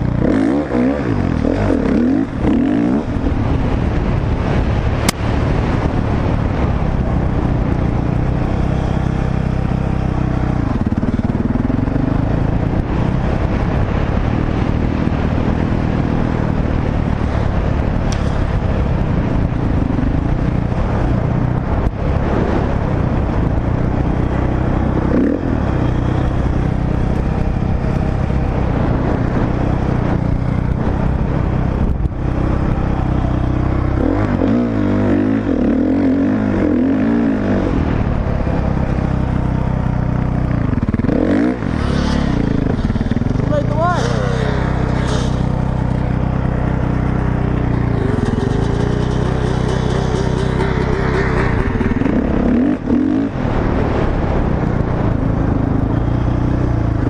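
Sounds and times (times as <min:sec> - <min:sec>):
dirt bike engine revving: 0:00.0 - 0:04.3, 0:40.6 - 0:54.4.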